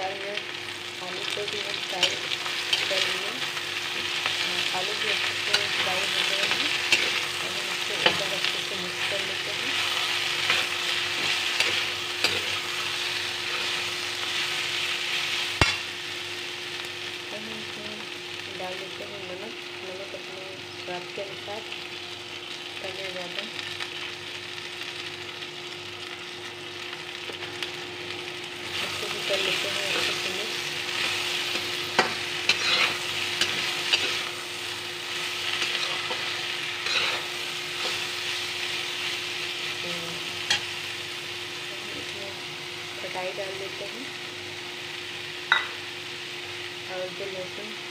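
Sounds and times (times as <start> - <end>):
vegetables sizzling in oil: 0.0 - 47.9
spoon stirring in pan: 29.9 - 34.3.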